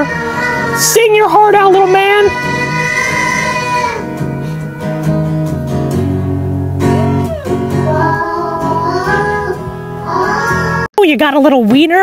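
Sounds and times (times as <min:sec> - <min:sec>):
toddler singing: 0:00.0 - 0:05.0, 0:07.3 - 0:10.9
acoustic guitar strumming: 0:00.0 - 0:10.9.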